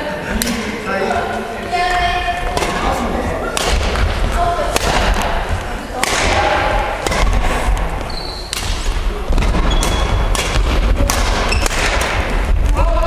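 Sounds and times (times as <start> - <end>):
rackets striking shuttlecock: 2.5 - 12.5
shoes squeaking on court: 8.0 - 8.6, 9.3 - 10.3, 11.5 - 11.8.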